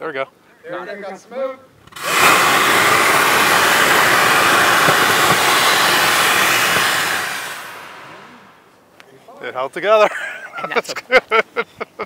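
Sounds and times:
rocket motor roaring: 1.9 - 8.7.

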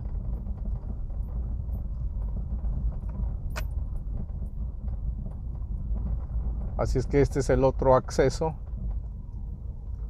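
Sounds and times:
vehicle rolling on gravel: 0.0 - 10.0.

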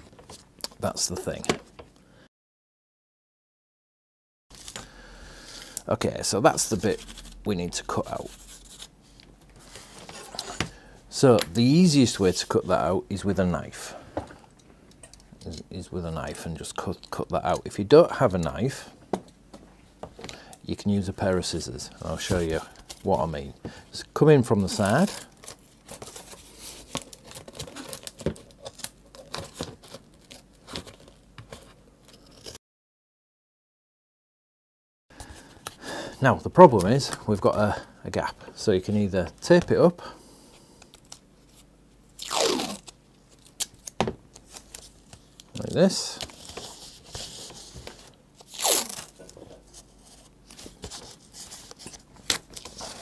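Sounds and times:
masking tape ripping: 42.2 - 44.0, 48.4 - 49.3.

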